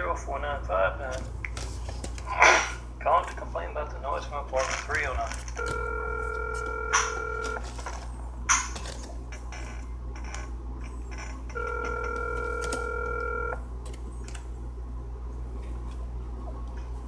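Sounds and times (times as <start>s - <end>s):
telephone ringback tone: 5.6s - 7.8s, 11.5s - 13.6s.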